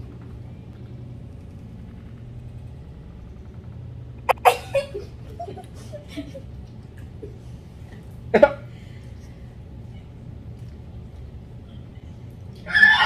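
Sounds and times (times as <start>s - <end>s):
steady low hum: 0.0s - 12.6s
sharp loud sounds: 4.2s - 4.8s.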